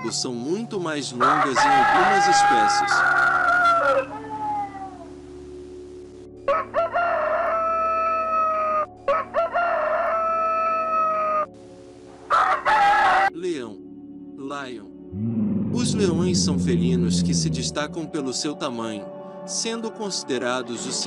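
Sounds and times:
rooster crowing: 1.2s - 5.1s, 6.5s - 11.5s, 12.3s - 13.3s.

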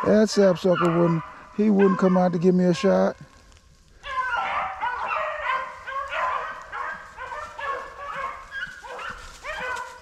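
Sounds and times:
dogs baying: 0.0s - 2.4s, 4.0s - 10.0s.

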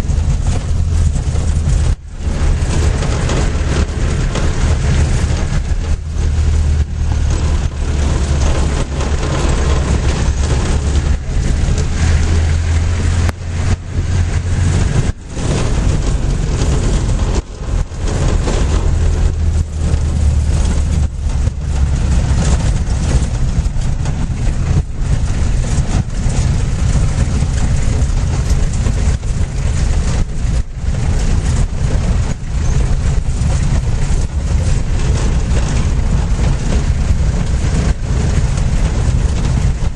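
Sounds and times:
deep hum: 0.0s - 39.9s
vehicle on gravel road rumble: 0.0s - 39.9s.

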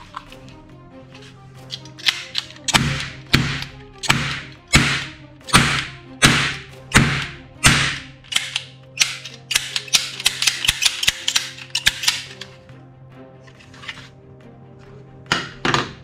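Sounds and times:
hammer clicks and snaps: 1.7s - 12.6s
cap gun bangs: 2.7s - 8.1s.

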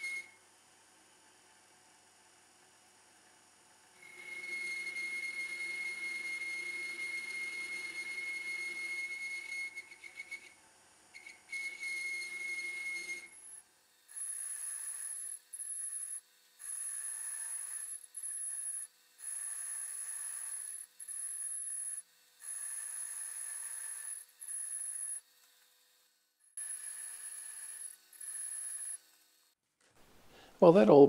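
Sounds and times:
whistling tone: 0.0s - 0.4s, 4.0s - 10.6s, 11.2s - 13.4s.

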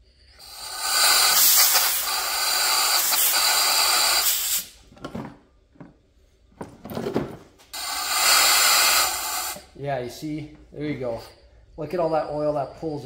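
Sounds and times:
compressed air blow gun hissing: 0.3s - 4.8s, 7.7s - 9.7s.

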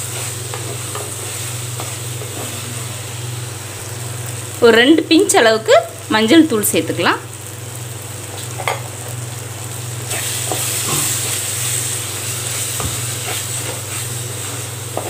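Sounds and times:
masala sizzling in a pot: 0.0s - 15.0s
wooden spatula scraping: 12.2s - 15.0s.

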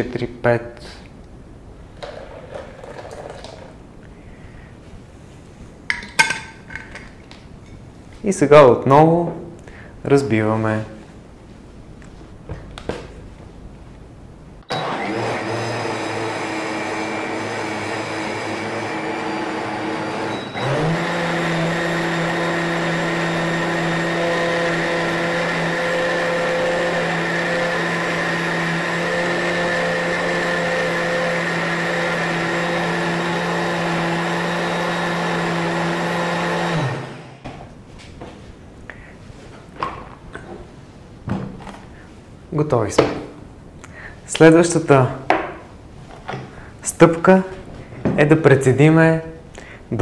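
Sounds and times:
blender running: 14.7s - 37.4s.

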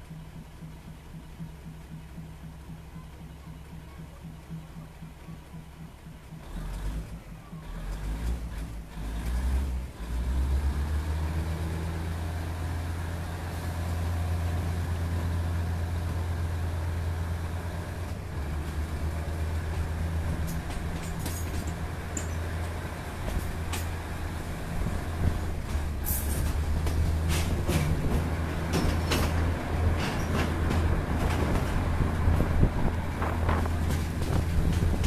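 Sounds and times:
railcar engine drone: 0.0s - 35.0s
wheel and rushing air noise: 17.4s - 35.0s.

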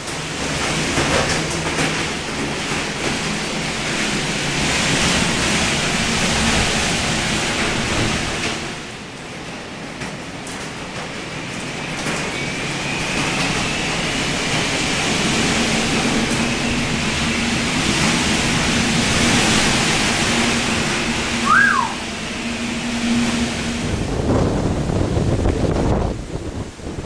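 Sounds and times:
storm wind and rain: 0.0s - 27.0s
short high squeak: 21.4s - 22.0s
low whistling tone: 21.4s - 23.8s.

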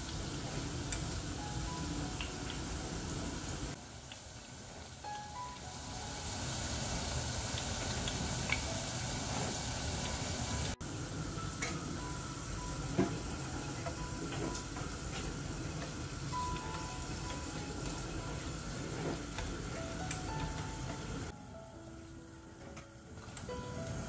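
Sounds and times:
potato slices sizzling in oil: 0.0s - 24.0s.

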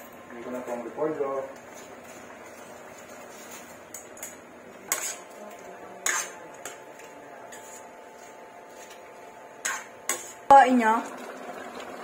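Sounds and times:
utensils scraping a steel wok: 2.1s - 9.0s, 9.6s - 10.5s.

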